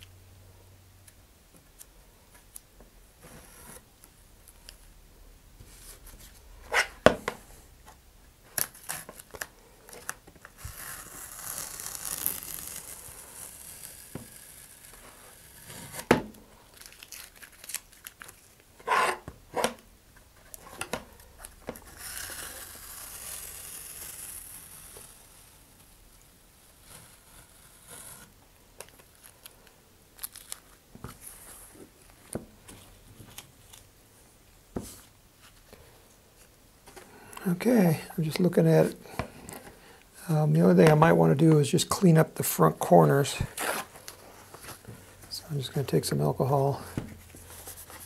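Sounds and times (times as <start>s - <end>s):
tape crinkling: 8.5s - 18.8s, 28.8s - 31.4s
masking tape peeling: 8.5s - 19.8s, 20.4s - 25.6s.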